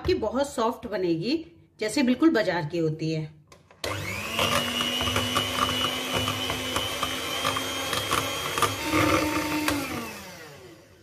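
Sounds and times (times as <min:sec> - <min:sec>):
electric hand mixer whining: 0:03.8 - 0:11.0.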